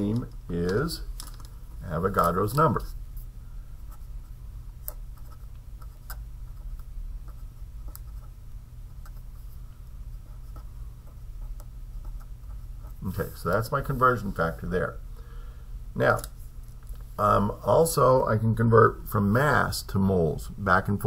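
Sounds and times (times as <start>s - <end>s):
steady low hum: 0.0s - 21.0s
marker scratching on paper: 3.9s - 14.6s
marker tapping: 4.8s - 9.2s.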